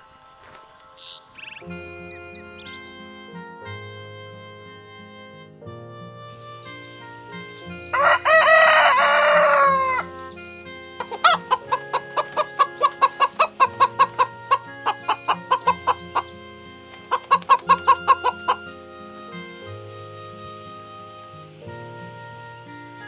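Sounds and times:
soft background music: 0.0s - 23.0s
rooster crowing: 7.9s - 10.1s
chicken clucking: 11.0s - 18.8s.

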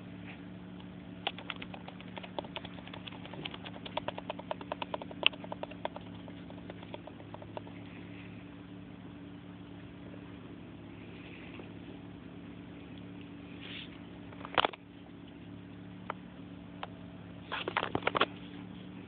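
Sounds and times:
kitten pawing at microphone: 1.3s - 7.8s.

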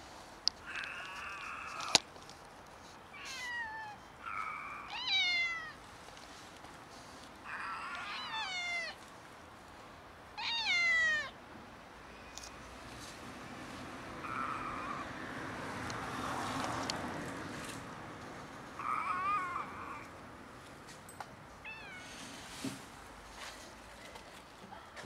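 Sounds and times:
cats meowing: 3.1s - 5.8s, 7.4s - 9.0s, 10.4s - 11.4s, 14.2s - 15.1s, 18.8s - 20.1s, 21.6s - 22.3s.

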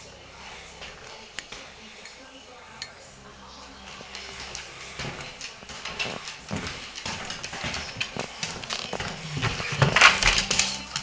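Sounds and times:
dog claws clicking on wooden floor: 3.9s - 11.0s.

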